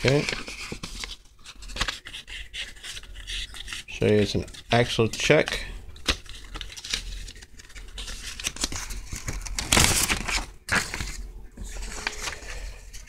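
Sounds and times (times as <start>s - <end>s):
paper envelope rustling: 0.0s - 13.0s.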